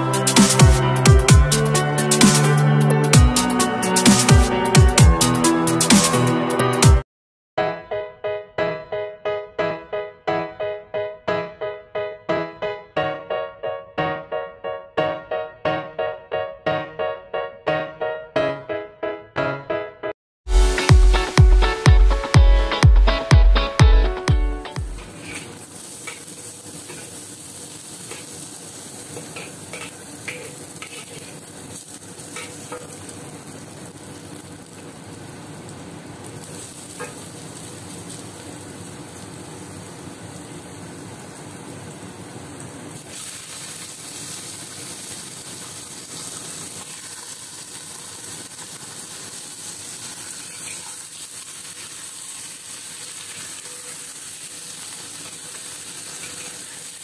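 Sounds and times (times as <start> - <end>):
garlic sizzling in hot oil: 25.0 - 57.0.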